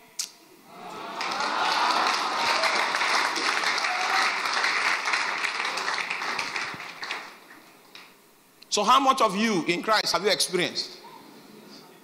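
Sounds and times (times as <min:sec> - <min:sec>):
congregation applauding: 0:00.7 - 0:08.1.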